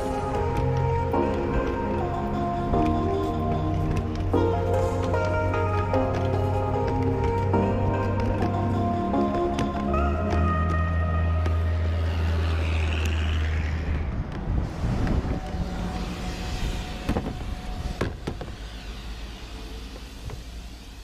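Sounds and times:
background music: 0.0 - 13.8
steady outdoor rumble: 0.0 - 21.0.

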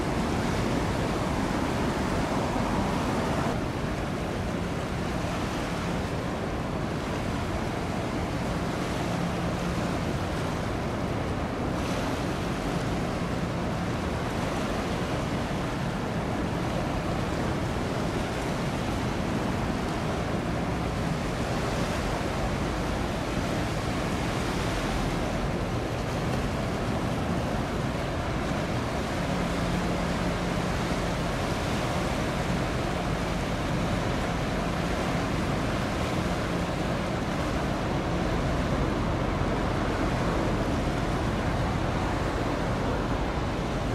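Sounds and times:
faint low ship hum: 0.0 - 43.9
water rushing: 0.0 - 43.9
wind: 0.0 - 43.9.

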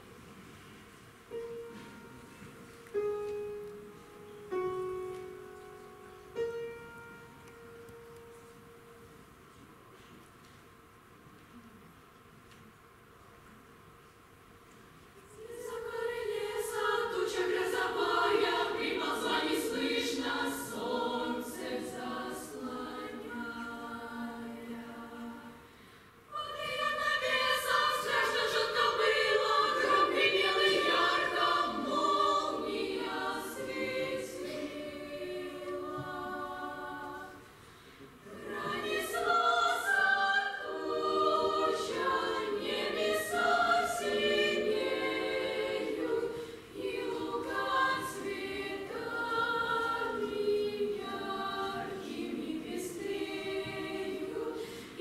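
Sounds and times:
children's choir singing: 15.2 - 25.7, 26.3 - 55.0.

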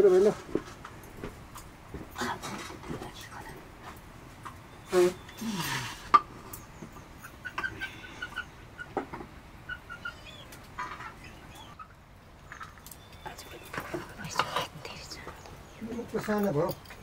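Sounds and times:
chickens clucking: 4.4 - 12.8.

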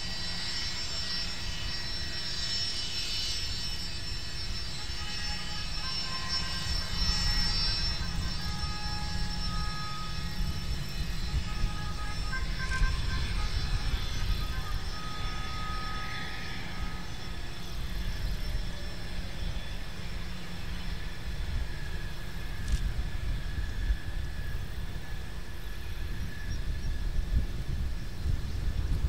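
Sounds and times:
jet engines whining while taxiing: 0.0 - 29.0.

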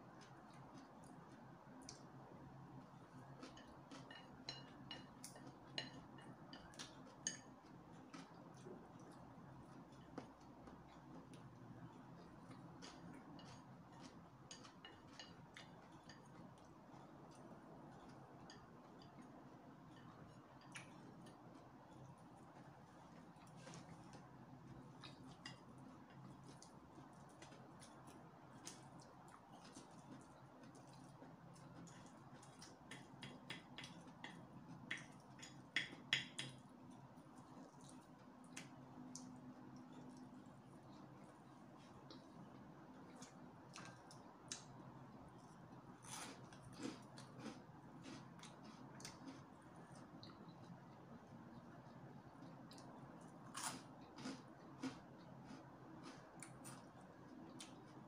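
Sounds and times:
chopsticks clicking on a plate: 3.4 - 8.4, 31.8 - 36.6
mouth chewing noodles: 37.4 - 58.0.

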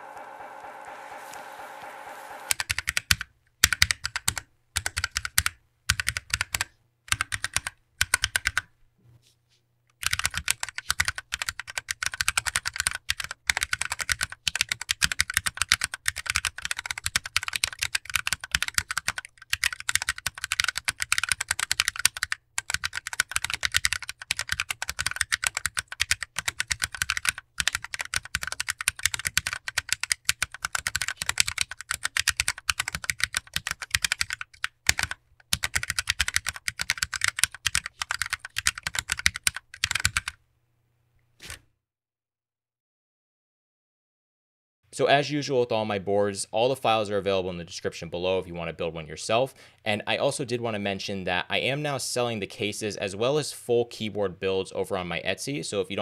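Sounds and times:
mechanical keyboard typing: 2.5 - 8.7, 10.0 - 40.4.

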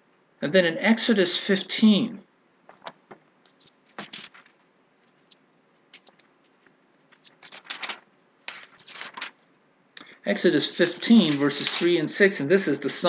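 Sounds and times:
paper pages flicking: 2.7 - 9.5, 10.7 - 12.3.

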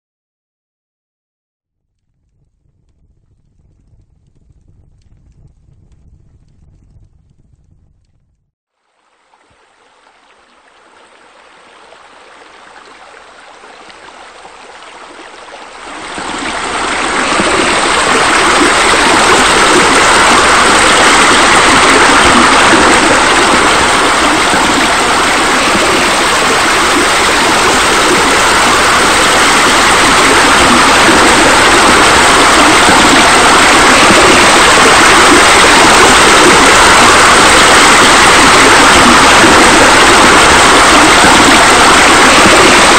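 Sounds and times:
water splashing from pool jets: 9.1 - 42.9.

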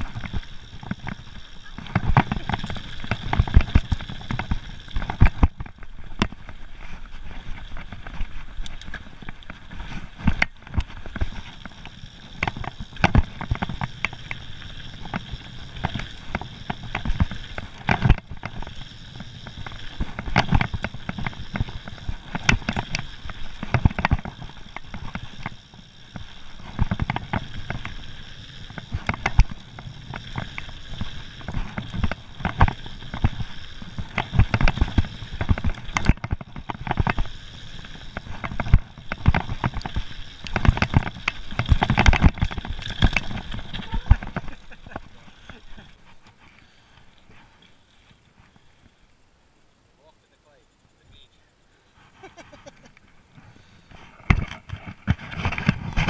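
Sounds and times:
tyres rolling over loose stones: 0.0 - 46.5
bike rattling over rocks: 0.0 - 48.7, 52.4 - 56.0.

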